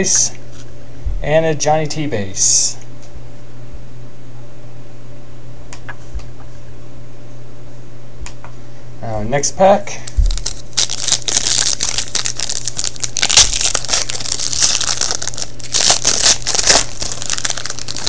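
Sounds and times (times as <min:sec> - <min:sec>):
card pack wrapper tearing: 0:10.1 - 0:18.0.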